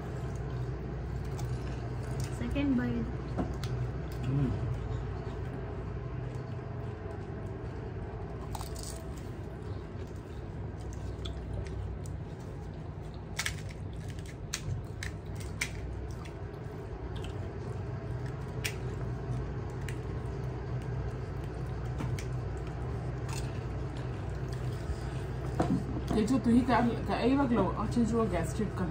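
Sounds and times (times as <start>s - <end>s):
steady low hum: 0.0s - 28.9s
crisp shells cracking and chewing: 3.5s - 25.0s.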